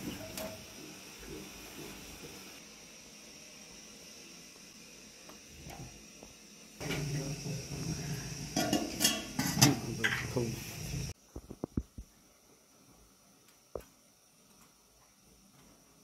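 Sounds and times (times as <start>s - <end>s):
metal drum clanking and rattling: 8.5s - 10.4s.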